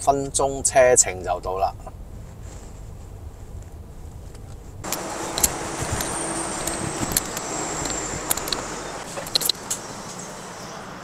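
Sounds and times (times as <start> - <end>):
traffic rumble and rush: 0.0 - 11.0
low hum: 2.8 - 9.6.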